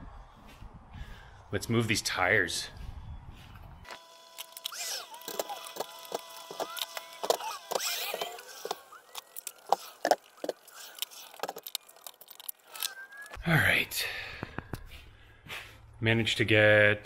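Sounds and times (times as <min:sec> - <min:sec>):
short squeaks: 0:04.6 - 0:11.3.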